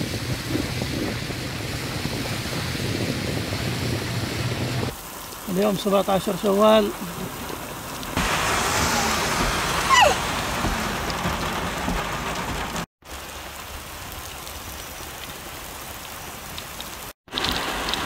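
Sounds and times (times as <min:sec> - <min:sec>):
heavy rain on wet pavement: 0:00.0 - 0:18.0
short falling whistle: 0:09.9 - 0:10.2.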